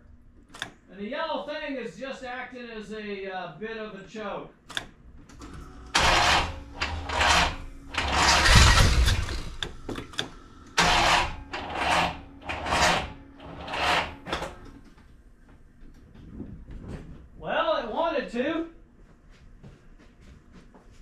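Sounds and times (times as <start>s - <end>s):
engine starter cranking: 5.3s - 14.8s.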